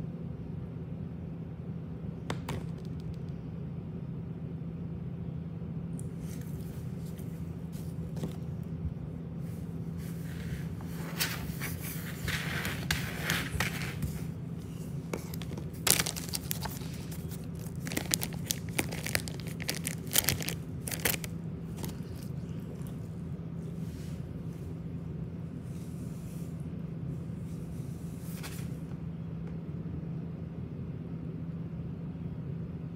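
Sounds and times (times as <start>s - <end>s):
steady low hum: 0.0s - 32.9s
dog rolling on wooden floor: 10.0s - 15.7s.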